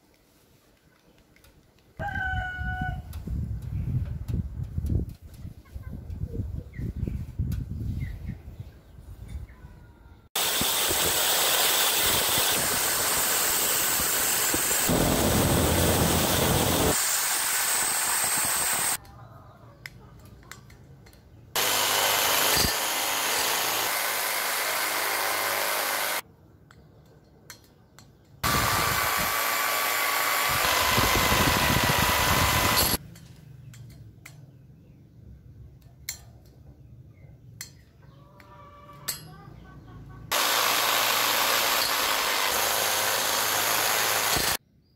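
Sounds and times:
electric drill grinding screws: 0:10.4 - 0:19.0, 0:21.6 - 0:26.2, 0:28.4 - 0:33.0, 0:40.3 - 0:44.6.

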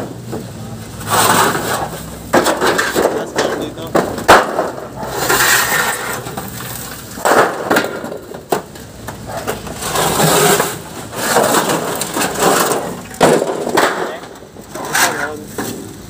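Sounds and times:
crunching and cracking: 0:00.0 - 0:16.0
sharp knocks: 0:02.3 - 0:05.0.

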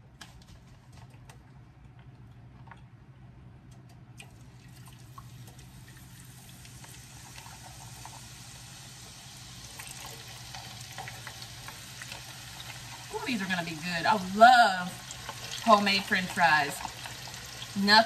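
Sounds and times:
fries sizzling in hot oil: 0:04.3 - 0:18.0.

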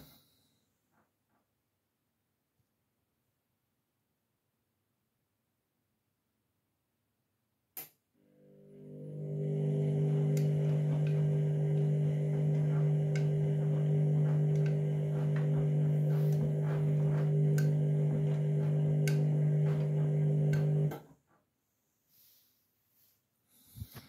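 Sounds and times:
washing machine humming: 0:08.3 - 0:21.1.

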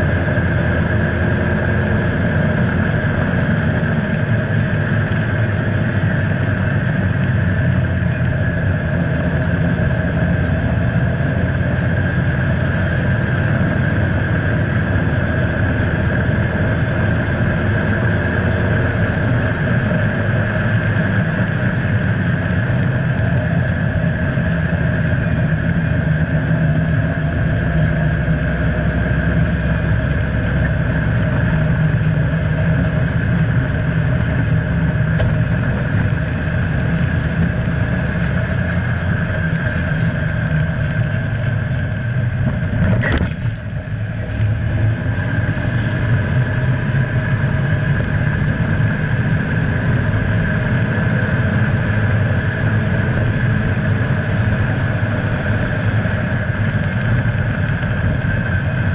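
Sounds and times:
vehicle road noise: 0:00.0 - 0:58.9.

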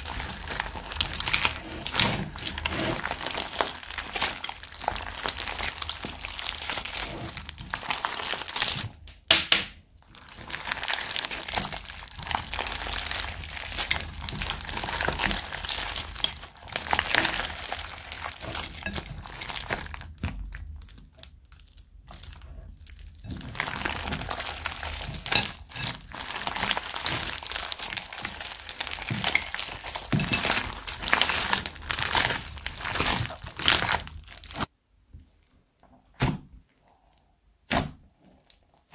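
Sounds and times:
sticky slime pops and squishes: 0:36.1 - 0:36.5, 0:37.6 - 0:38.0.

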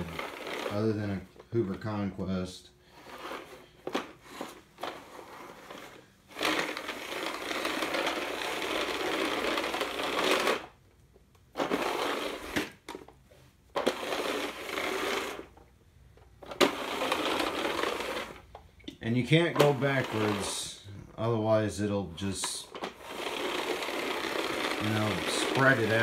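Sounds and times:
floor sweeper brushes whirring: 0:00.0 - 0:26.0.

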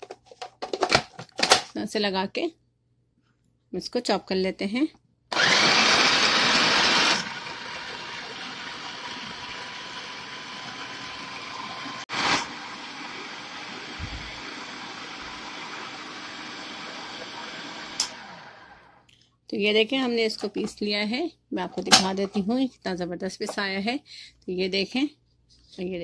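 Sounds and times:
food processor chopping bread: 0:05.3 - 0:18.8
food processor click: 0:17.2 - 0:18.2.

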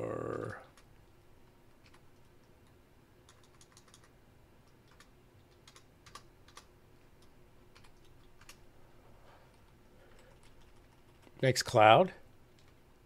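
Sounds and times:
computer keyboard keystrokes: 0:01.8 - 0:02.5, 0:03.2 - 0:08.6, 0:12.5 - 0:12.8.

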